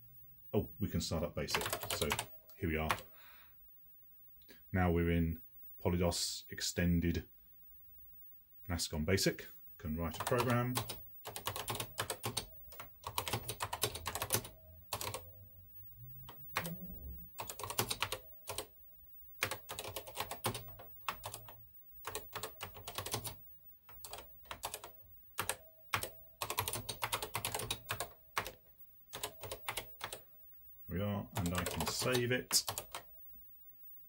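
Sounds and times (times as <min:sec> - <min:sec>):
computer keyboard typing: 0:01.5 - 0:03.1, 0:10.0 - 0:15.3, 0:16.2 - 0:18.7, 0:19.4 - 0:30.2, 0:31.2 - 0:33.1.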